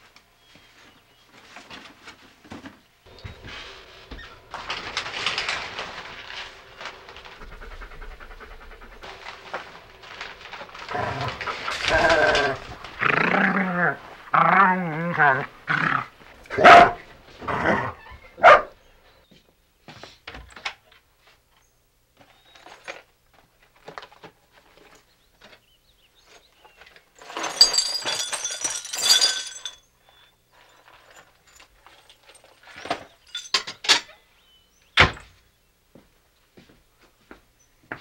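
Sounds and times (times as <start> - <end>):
kitchen clinks and knocks: 27.2 - 29.9, 31.2 - 34.2.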